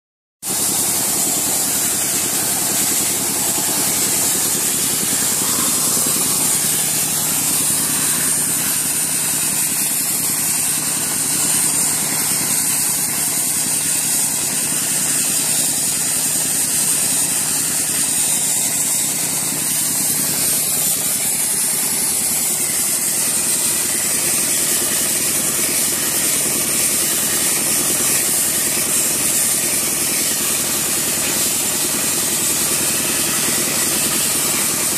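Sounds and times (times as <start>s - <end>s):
air compressor engine running: 0.4s - 34.9s
loud hiss of sandblast jet: 0.4s - 34.9s.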